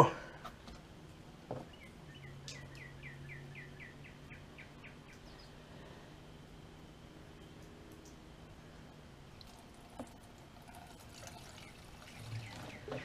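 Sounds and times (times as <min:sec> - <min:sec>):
bird chirping trill: 0:01.6 - 0:05.6, 0:11.3 - 0:13.0
gasoline pouring into tank: 0:09.4 - 0:13.0.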